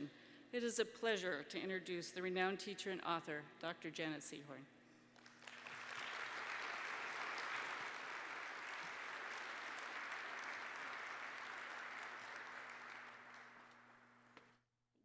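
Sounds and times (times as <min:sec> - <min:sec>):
audience applauding: 0:05.2 - 0:14.0.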